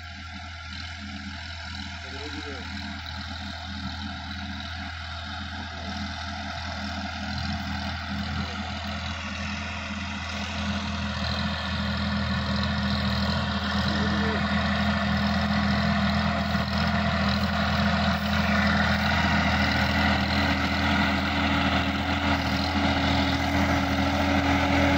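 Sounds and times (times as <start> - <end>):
tractor diesel engine running: 0.0 - 24.9.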